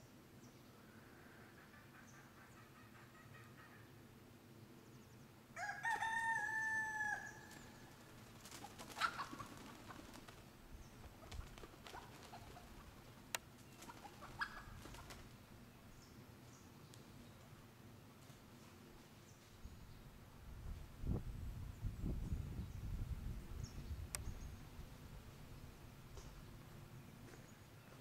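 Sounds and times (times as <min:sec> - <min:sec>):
rooster crowing: 0:05.6 - 0:07.9.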